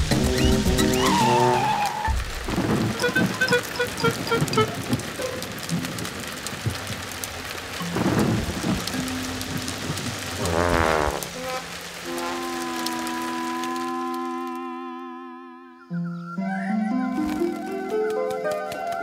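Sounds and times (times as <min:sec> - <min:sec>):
thunder rumbling: 0:00.0 - 0:14.6
steady rain falling: 0:00.0 - 0:15.8, 0:16.9 - 0:19.0
short musical notes: 0:02.9 - 0:05.0.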